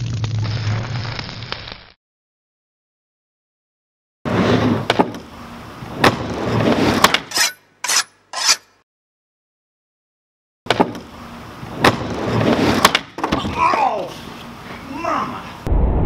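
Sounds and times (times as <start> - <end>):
skateboard wheels rolling on wood: 4.3 - 7.2, 10.7 - 14.9.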